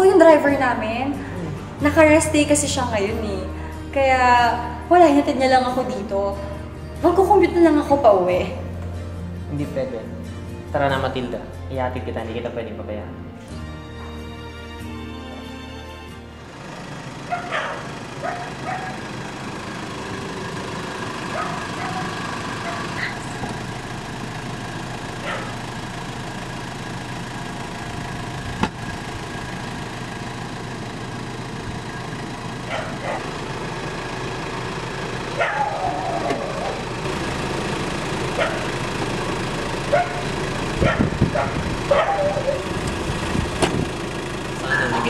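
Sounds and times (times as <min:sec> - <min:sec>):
car engine idling: 0:00.0 - 0:12.2, 0:15.3 - 0:45.0
dog barking: 0:17.3 - 0:19.0, 0:21.3 - 0:23.2, 0:25.2 - 0:25.6, 0:32.7 - 0:33.3, 0:35.4 - 0:36.7, 0:38.4 - 0:38.7, 0:39.9 - 0:42.7.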